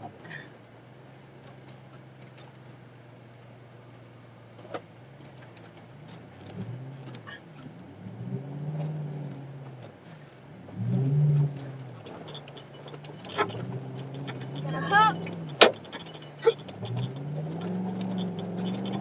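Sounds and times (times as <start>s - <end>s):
pickup truck engine revving: 4.6s - 19.0s.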